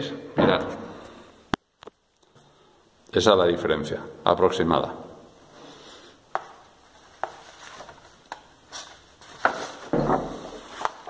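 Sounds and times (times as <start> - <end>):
paper sheets rustling: 6.4 - 11.0.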